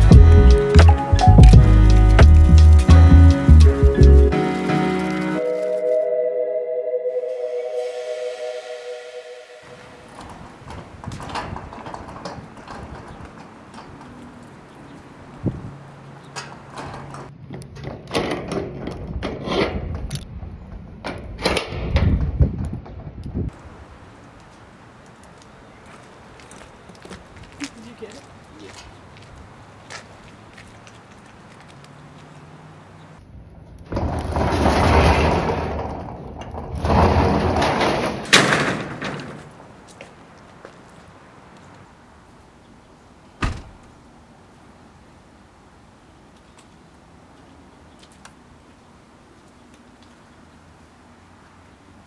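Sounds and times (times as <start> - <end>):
door rumbling along track: 9.8 - 14.7, 33.9 - 39.7
belongings knocking and clattering: 10.2 - 14.2
door banging shut: 33.9 - 39.6, 43.4 - 43.8.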